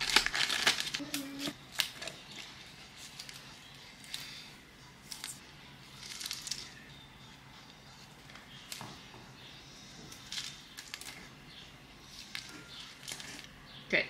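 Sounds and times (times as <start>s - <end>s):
plastic ribbon rustling: 0.0s - 4.4s, 5.0s - 6.8s, 10.0s - 11.4s, 12.0s - 13.6s.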